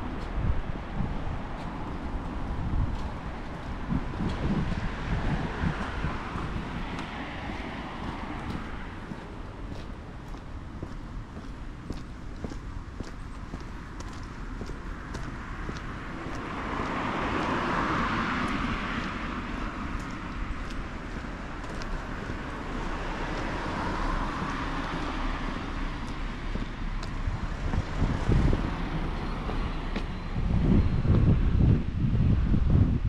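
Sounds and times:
cars passing: 0.0 - 33.0.

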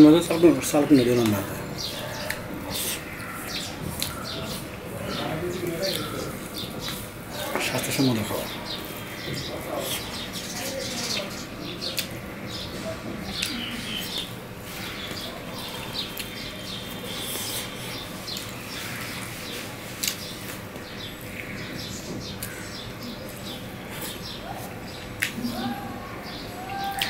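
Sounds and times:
chewing: 1.9 - 3.3, 3.9 - 4.7.

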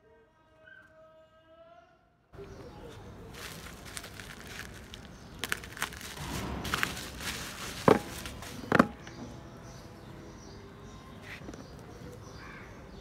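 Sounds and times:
bubble wrap crinkling: 3.2 - 9.0
bubble wrap popping cracks: 3.3 - 8.8.

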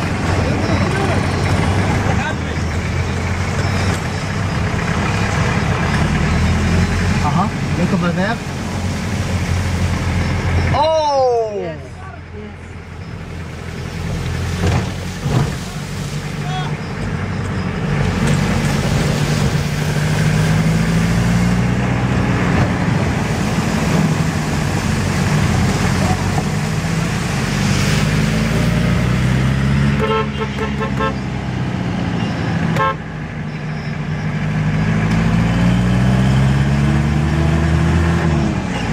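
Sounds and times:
car engine: 0.0 - 38.9
tyres hissing on wet road: 5.0 - 10.6, 13.2 - 16.8, 18.0 - 29.7
car horn short beeps: 30.0 - 31.2, 32.8 - 33.0.

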